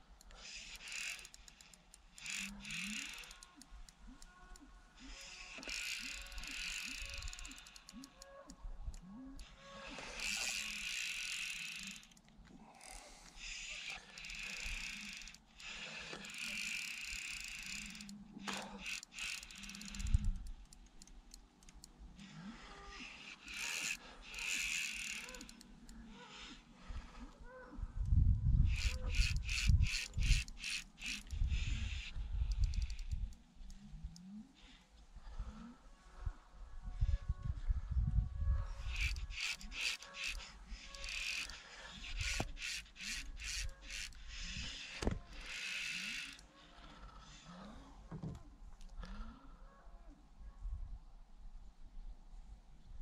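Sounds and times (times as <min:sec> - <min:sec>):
fishing reel winding: 0:00.2 - 0:27.2, 0:28.6 - 0:34.8, 0:38.6 - 0:47.6.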